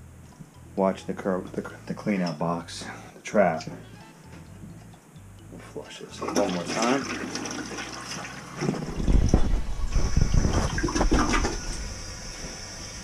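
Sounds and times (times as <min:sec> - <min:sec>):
toilet flushing: 0:06.1 - 0:13.0
low rumbling and knocks: 0:08.6 - 0:12.8.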